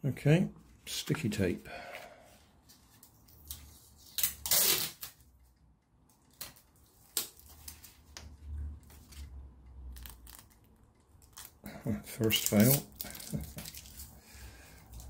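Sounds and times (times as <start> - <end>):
paper and tape crackling: 2.6 - 5.4, 6.2 - 15.0.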